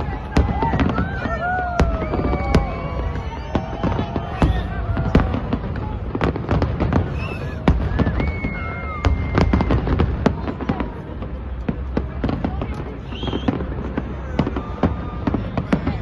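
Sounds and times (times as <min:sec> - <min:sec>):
fireworks bangs and crackles: 0:00.0 - 0:16.0.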